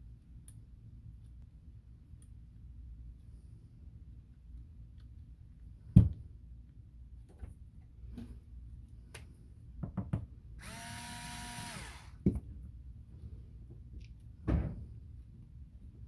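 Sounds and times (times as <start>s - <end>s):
cordless screwdriver whining: 10.6s - 12.2s.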